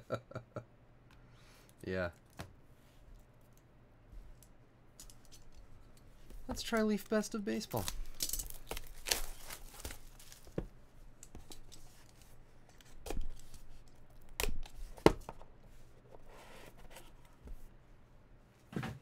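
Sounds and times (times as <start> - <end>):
shrink wrap tearing and crinkling: 6.5 - 10.6.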